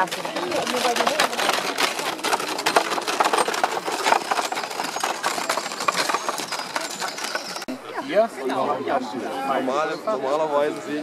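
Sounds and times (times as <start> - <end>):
wooden wheels rolling on gravel: 0.0 - 7.7.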